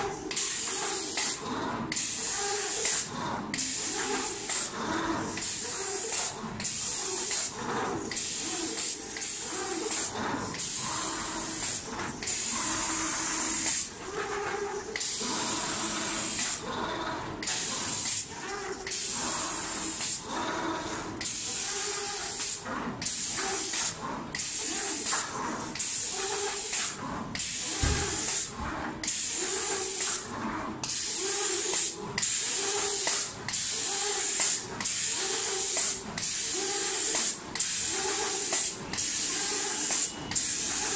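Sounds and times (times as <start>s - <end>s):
spray gun hissing bursts: 2.0s - 4.7s, 5.3s - 7.5s, 8.1s - 12.5s, 27.5s - 28.5s, 30.9s - 40.9s.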